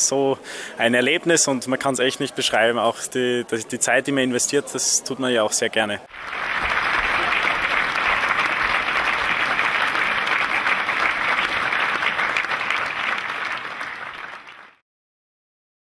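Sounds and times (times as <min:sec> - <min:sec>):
audience applauding: 0:06.1 - 0:14.8.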